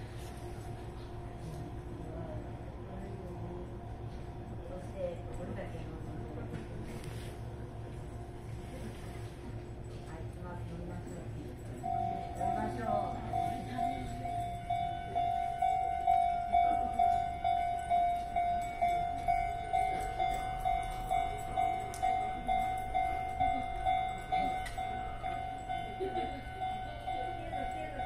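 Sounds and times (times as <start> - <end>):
level crossing alarm bell: 11.0 - 28.0.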